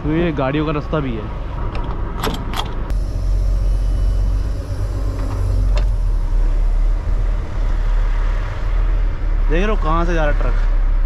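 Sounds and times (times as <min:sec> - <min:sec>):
diesel truck engine rumble: 0:00.0 - 0:11.0.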